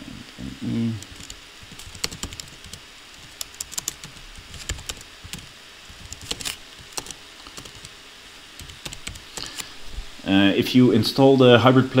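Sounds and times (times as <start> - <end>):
keyboard keys clicking: 1.0 - 7.9, 8.6 - 9.7.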